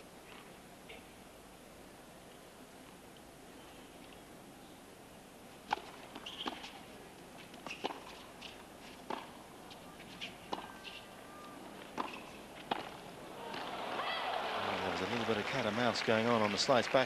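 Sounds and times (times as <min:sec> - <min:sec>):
racket hitting tennis ball: 0:05.7 - 0:06.8, 0:07.6 - 0:09.4, 0:10.2 - 0:11.0, 0:11.8 - 0:13.7
tennis ball bouncing: 0:05.7 - 0:06.8, 0:07.5 - 0:11.0, 0:11.8 - 0:13.7.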